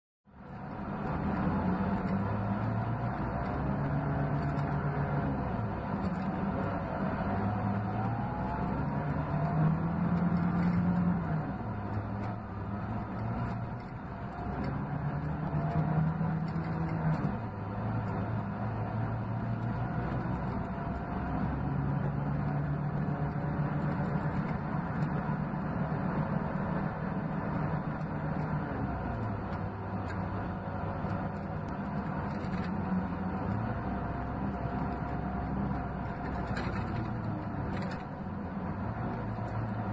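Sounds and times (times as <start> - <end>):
diesel engine running: 0.3 - 39.9.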